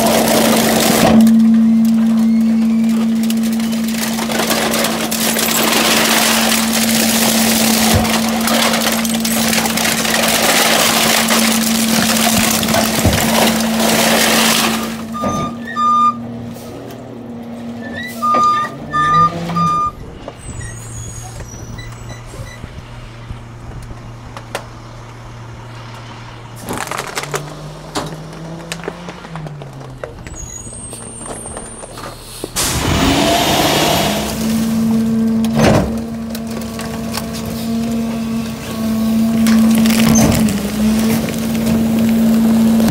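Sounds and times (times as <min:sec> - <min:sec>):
hydraulic compactor grinding: 0:00.0 - 0:15.8
short electronic beeps: 0:18.2 - 0:20.0.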